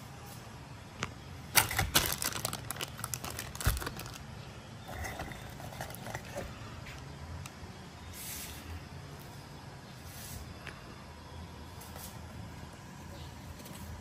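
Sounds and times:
cardboard and plastic bag rustling: 1.6 - 4.2.

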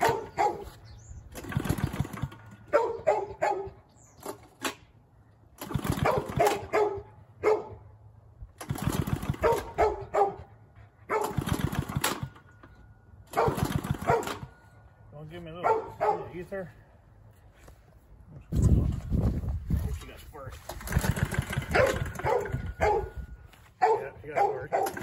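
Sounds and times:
dog barking: 0.0 - 0.7, 2.7 - 3.8, 6.0 - 7.8, 9.4 - 10.5, 11.1 - 11.4, 13.3 - 14.4, 15.6 - 16.3, 21.7 - 23.2, 23.8 - 25.0
engine pull-start cranking: 1.3 - 2.7, 5.5 - 6.7, 8.5 - 9.8, 11.1 - 14.6, 20.6 - 23.0, 24.8 - 25.0.

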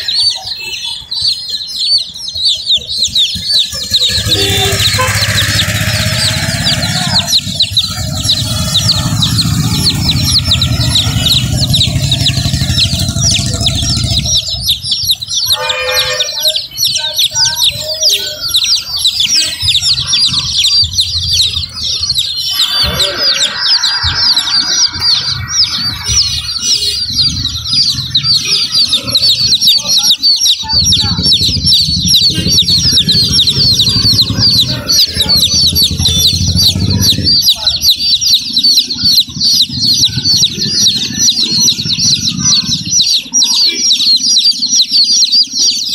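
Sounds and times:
baby chicks peeping: 0.0 - 45.9
low rumble: 3.8 - 15.4, 30.7 - 37.8.

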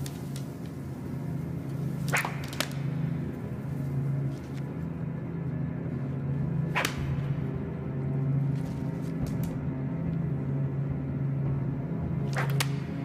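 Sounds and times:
low pulsing drone: 0.0 - 13.0
sharp swishing cracks: 2.0 - 3.1, 6.7 - 7.2, 12.3 - 13.0.

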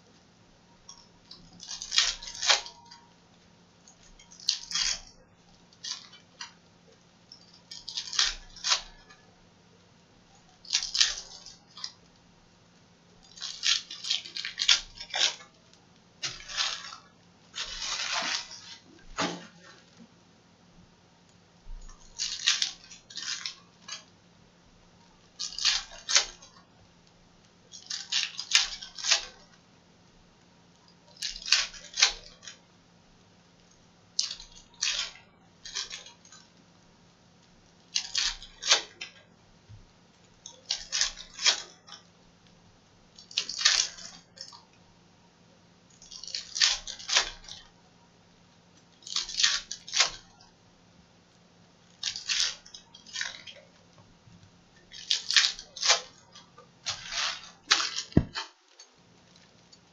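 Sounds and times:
foil wrappers crinkling and tearing: 1.4 - 3.0, 4.1 - 5.1, 7.3 - 9.2, 10.6 - 12.0, 13.2 - 15.6, 16.2 - 20.0, 21.9 - 24.1, 25.3 - 26.6, 27.7 - 29.6, 34.2 - 36.4, 37.8 - 39.2, 40.5 - 42.0, 43.2 - 44.6, 46.0 - 47.7, 49.0 - 50.4, 51.9 - 53.6, 54.8 - 59.8.

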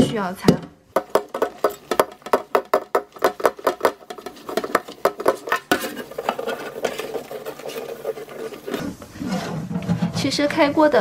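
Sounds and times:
sponge scrubbing iron wok: 1.0 - 10.2.

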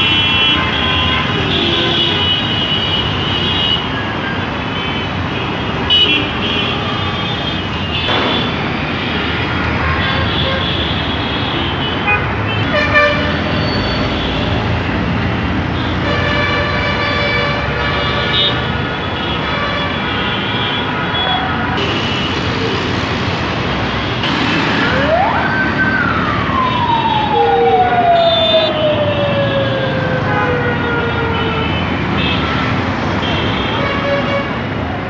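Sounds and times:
vehicle horns: 0.0 - 14.6, 15.7 - 22.5, 30.2 - 34.7
traffic road rumble: 0.0 - 35.0
siren: 24.6 - 32.1.

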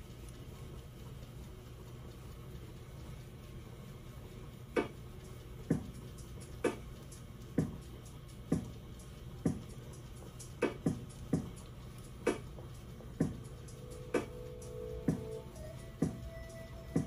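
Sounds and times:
hair steamer hum and hiss: 9.4 - 17.0.

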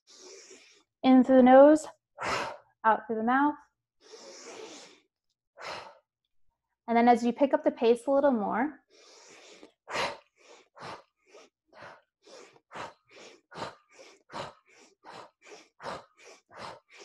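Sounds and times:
nose inhales: 0.0 - 0.9, 4.0 - 5.0, 8.9 - 17.0.

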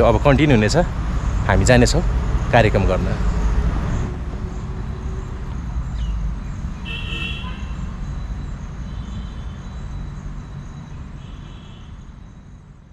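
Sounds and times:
high chirps: 1.2 - 11.2.

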